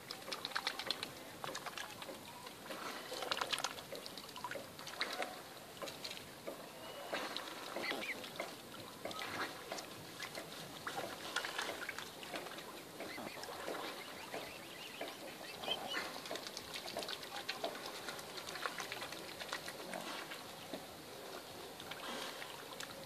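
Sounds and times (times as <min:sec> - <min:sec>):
small clicks and splashes: 0:00.0 - 0:23.0
swans calling softly: 0:06.4 - 0:21.0.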